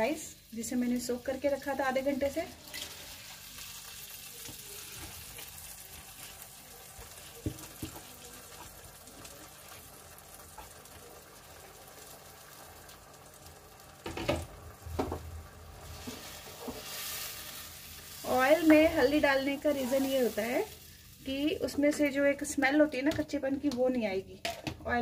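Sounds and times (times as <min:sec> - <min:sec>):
pot sizzling softly: 0:00.0 - 0:22.4
wooden spatula stirring rice: 0:04.4 - 0:09.8.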